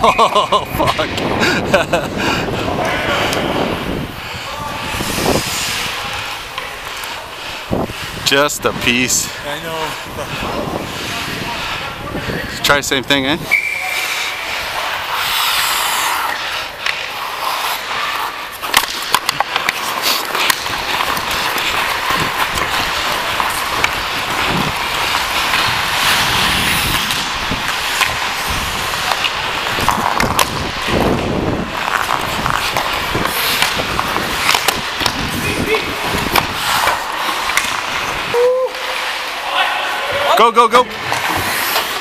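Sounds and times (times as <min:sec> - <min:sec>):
skate blades scraping ice: 0:00.0 - 0:42.0
hockey sticks and puck clicking: 0:02.8 - 0:03.6, 0:04.8 - 0:08.0, 0:13.9 - 0:39.5, 0:41.0 - 0:42.0.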